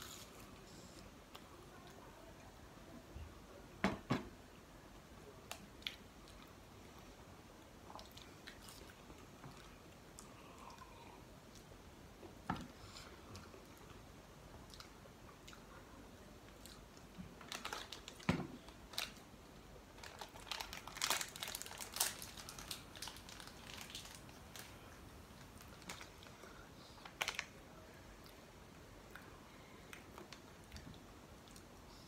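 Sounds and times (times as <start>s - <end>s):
eating sounds: 7.8s - 11.7s
plastic wrapper crinkling and tearing: 17.4s - 18.3s, 18.9s - 19.2s, 20.0s - 24.8s, 25.4s - 26.3s, 27.0s - 27.5s.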